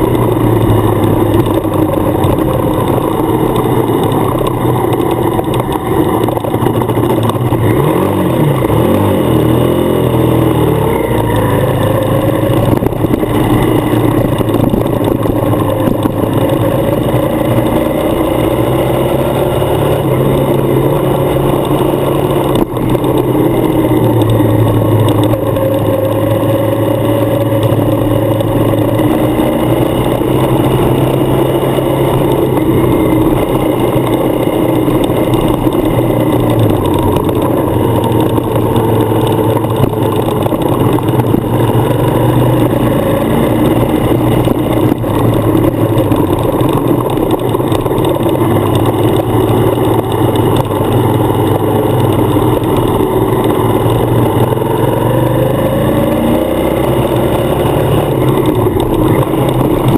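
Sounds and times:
wind noise: 0.0s - 18.0s
motorcycle engine running: 0.0s - 59.9s
road noise on gravel: 0.0s - 59.9s.

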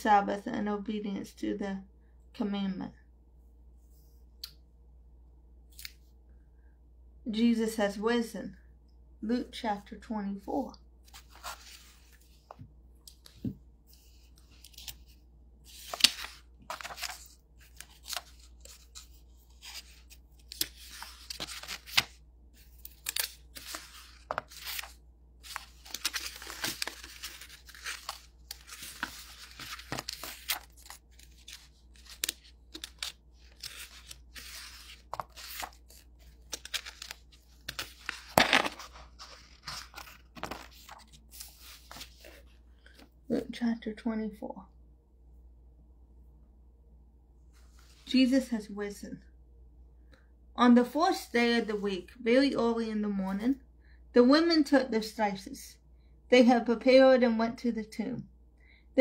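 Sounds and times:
thin pages turning: 11.0s - 43.1s.

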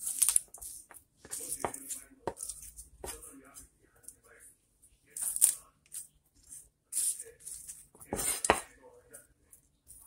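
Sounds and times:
knife chopping on cutting board: 8.1s - 8.7s.

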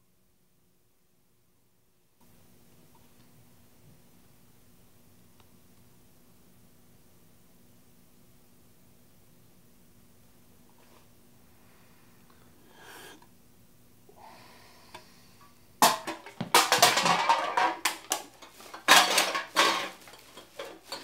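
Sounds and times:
items knocking together in bag: 15.8s - 21.0s.

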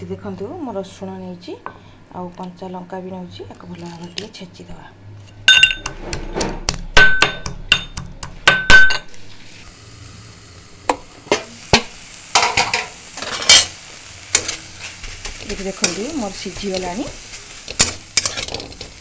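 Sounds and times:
metal pestle pounding in mortar: 5.5s - 9.0s
food sizzling in a frying pan: 8.5s - 19.0s
spatula scraping a pan: 11.3s - 19.0s.

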